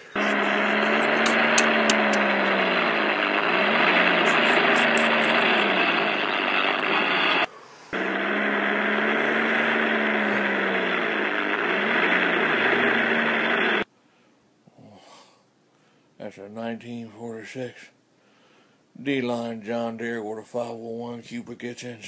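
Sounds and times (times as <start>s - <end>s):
recorded tractor engine running: 0.0s - 13.8s
second tractor engine pitch rising: 0.0s - 13.8s.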